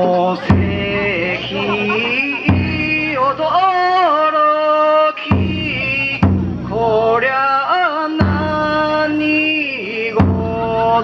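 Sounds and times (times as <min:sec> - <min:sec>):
taiko drum strikes: 0:00.4 - 0:03.8, 0:05.3 - 0:07.4, 0:08.1 - 0:09.5, 0:10.1 - 0:11.0.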